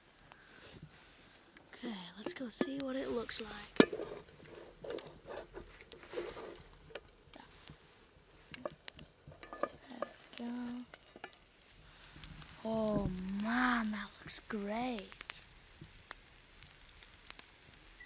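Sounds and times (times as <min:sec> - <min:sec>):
food sizzling: 0:00.0 - 0:18.0
utensil scraping in pot: 0:02.2 - 0:06.8, 0:08.4 - 0:11.4.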